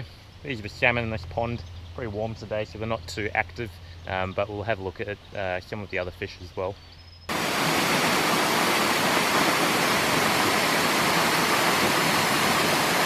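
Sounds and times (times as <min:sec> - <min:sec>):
waterfall rushing: 0:07.3 - 0:13.0.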